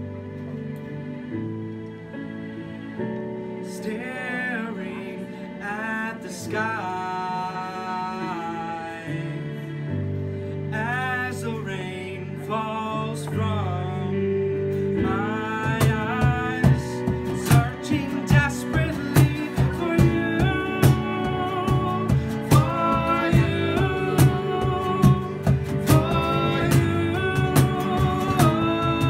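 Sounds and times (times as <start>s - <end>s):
keyboard chords: 0.0s - 29.0s
man singing: 3.7s - 10.0s, 10.7s - 29.0s
strummed acoustic guitar: 13.2s - 29.0s
cajon beat: 15.7s - 29.0s.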